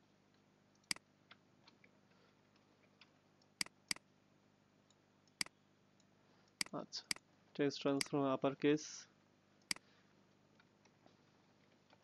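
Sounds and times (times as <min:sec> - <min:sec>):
computer mouse clicks: 0:00.8 - 0:04.1, 0:04.9 - 0:05.6.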